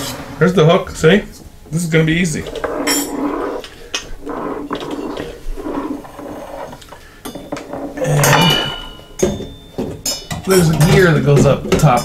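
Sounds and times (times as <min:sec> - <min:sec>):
ringing metal clink: 0:07.2 - 0:10.9.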